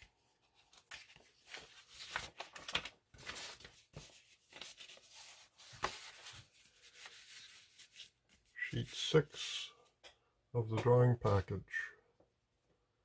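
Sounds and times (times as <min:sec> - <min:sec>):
paper pages rustling: 0:00.0 - 0:08.6.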